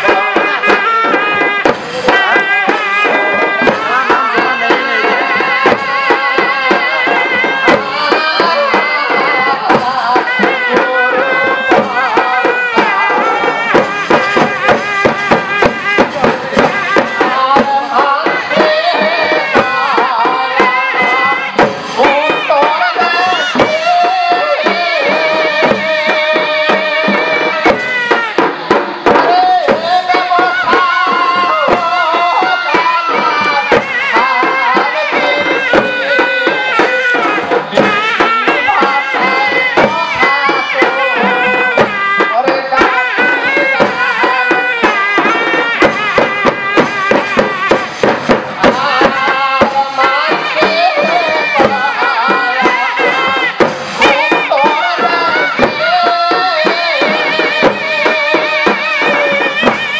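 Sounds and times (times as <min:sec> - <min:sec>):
fast dense drum strokes: 0:00.0 - 0:59.9.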